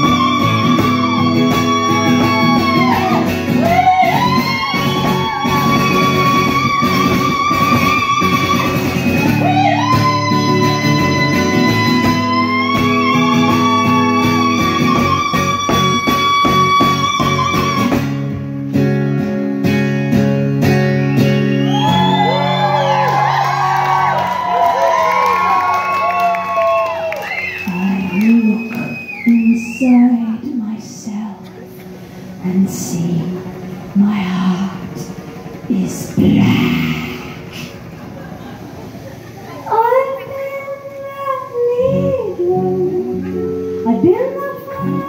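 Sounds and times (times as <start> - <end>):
singer holding long notes: 0.0 - 18.2
amplified acoustic guitar: 0.0 - 24.5
live band playing: 0.0 - 41.2, 41.9 - 45.0.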